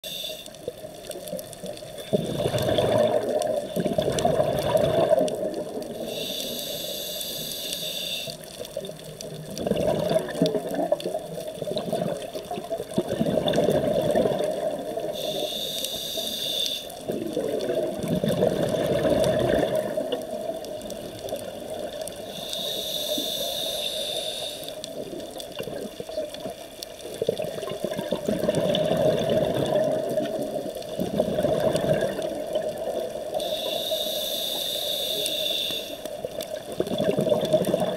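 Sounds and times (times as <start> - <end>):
regulator inhale hiss: 0.0 - 0.9, 5.9 - 8.6, 15.0 - 17.1, 22.1 - 25.0, 33.3 - 36.3
bubbling exhale gurgles: 1.6 - 6.8, 8.7 - 16.3, 17.0 - 34.8, 36.1 - 37.9.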